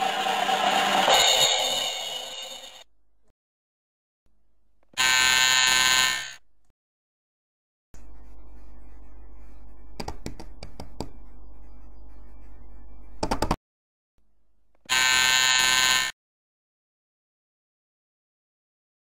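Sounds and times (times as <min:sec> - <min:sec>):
harsh buzzer: 0:04.9 - 0:06.4, 0:14.8 - 0:16.2
low steady hum: 0:08.0 - 0:13.3.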